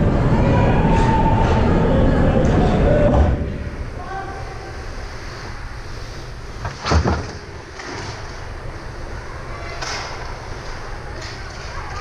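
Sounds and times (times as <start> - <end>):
low rumble of ice arena: 0.0 - 12.0
heavy thud: 6.6 - 7.6.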